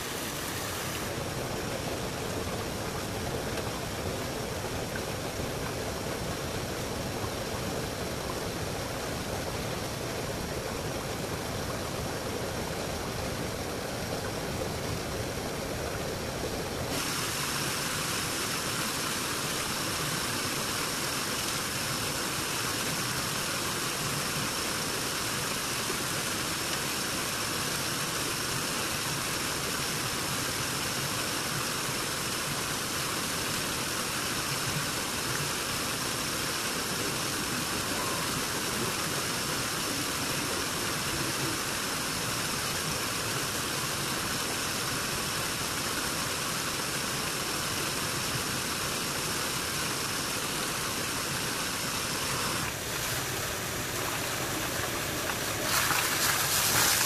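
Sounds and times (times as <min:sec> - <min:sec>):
faint high whine: 0:37.4 - 0:41.8, 0:50.9 - 0:57.0.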